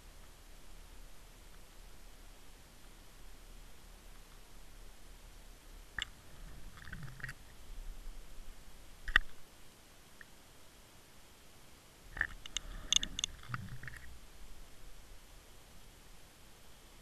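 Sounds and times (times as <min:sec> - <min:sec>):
low steady hiss: 0:00.0 - 0:17.0
clicks and knocks in camera housing: 0:09.1 - 0:09.4, 0:12.2 - 0:14.1.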